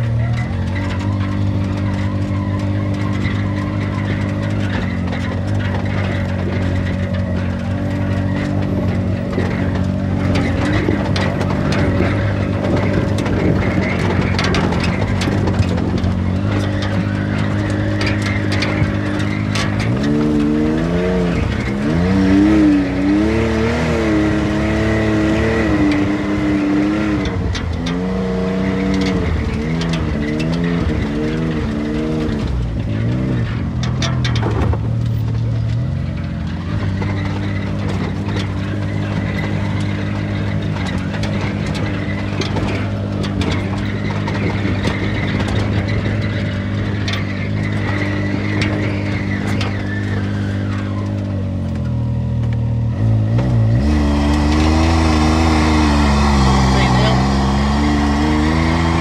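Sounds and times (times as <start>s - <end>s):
utility vehicle engine revving: 0.0s - 59.0s.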